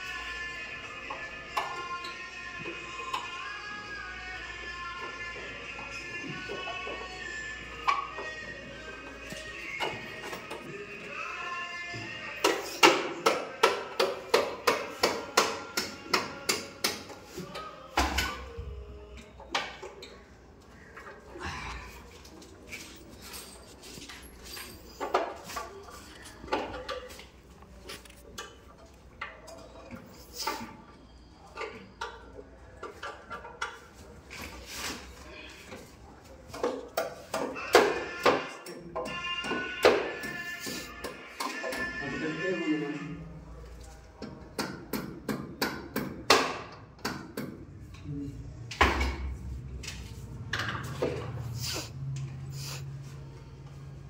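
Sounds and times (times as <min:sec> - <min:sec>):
tools knocking and tapping: 0:12.4 - 0:18.5, 0:44.2 - 0:48.0.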